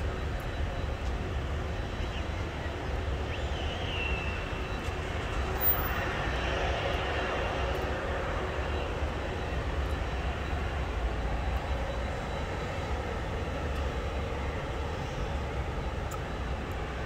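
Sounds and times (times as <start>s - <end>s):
distant jet engines running: 0.0s - 17.0s
high engine whine: 0.0s - 17.0s.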